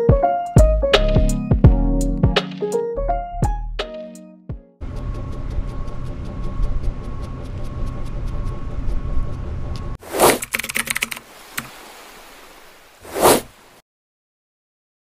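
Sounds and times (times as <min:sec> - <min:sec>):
quick run of clicks: 0:10.1 - 0:11.7
whoosh sound effect: 0:13.0 - 0:13.5.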